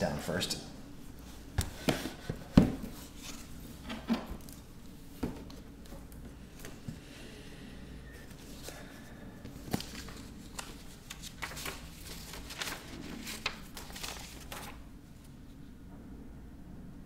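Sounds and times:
packaging rustling and scraping: 9.5 - 14.8.

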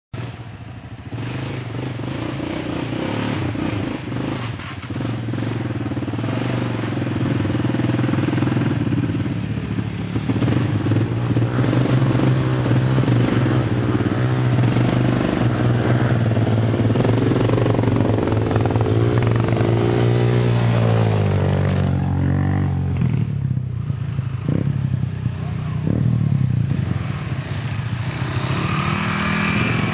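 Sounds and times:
atv engines running: 0.2 - 29.9.

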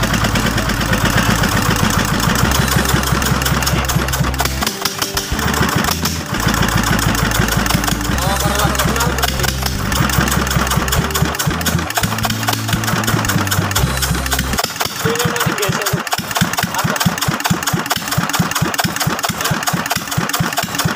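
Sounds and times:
low steady bass notes: 0.0 - 14.6
diesel engine running: 0.0 - 20.9.

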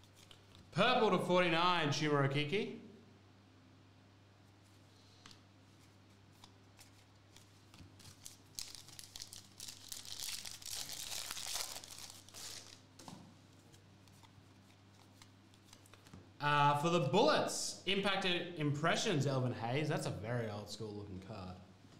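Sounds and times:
foil wrapper tearing and crinkling: 7.8 - 12.9.

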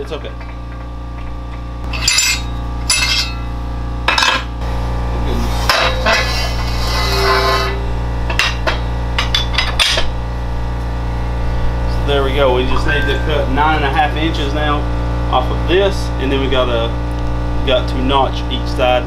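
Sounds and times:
steel tube clanking on metal: 0.0 - 4.5, 5.4 - 10.1
steady low hum: 0.0 - 19.0.

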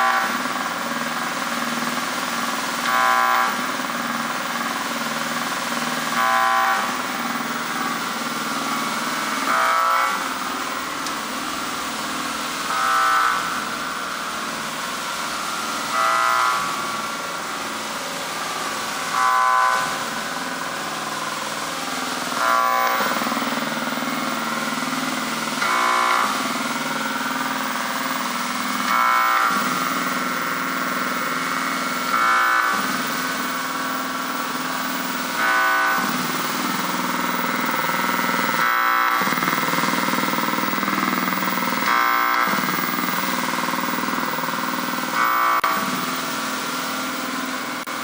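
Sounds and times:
buzzy synthesizer drone: 0.0 - 48.0
high synthesizer tone: 33.6 - 46.5.

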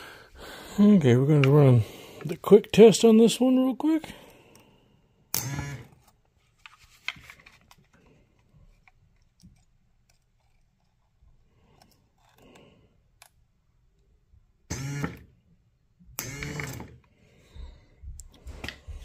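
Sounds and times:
electric motor and gearbox running: 16.2 - 17.0.

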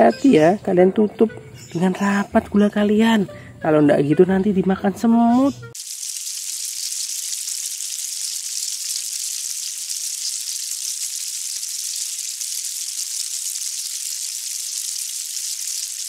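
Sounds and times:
ants rustling with sizzling hiss: 5.8 - 16.0.

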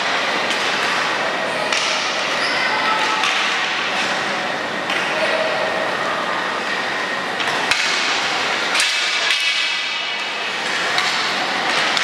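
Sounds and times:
echoing hall noise: 0.0 - 12.0
hockey sticks knocking: 7.4 - 12.0.

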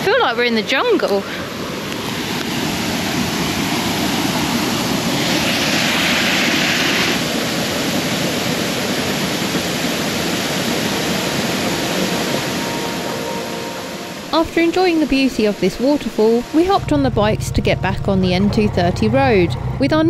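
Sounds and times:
waterfall rushing: 0.0 - 16.8.

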